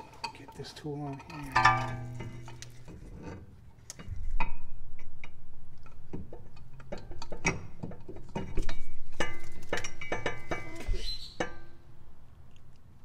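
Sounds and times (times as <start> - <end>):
metal tool clicking and clinking: 0.0 - 4.1.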